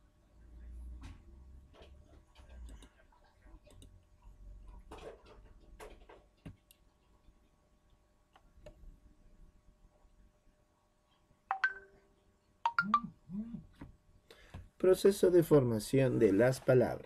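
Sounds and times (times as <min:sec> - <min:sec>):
computer mouse clicks: 0:02.5 - 0:03.0, 0:03.6 - 0:04.0.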